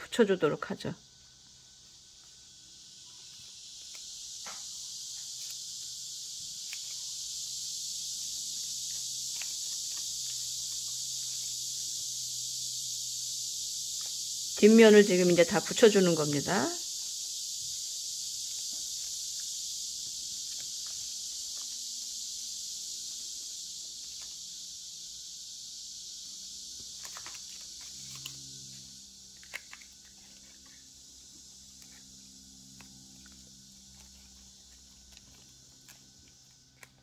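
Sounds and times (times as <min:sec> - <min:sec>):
steady high hiss: 0:00.0 - 0:37.0
paper rustling: 0:08.6 - 0:11.5, 0:26.9 - 0:28.4.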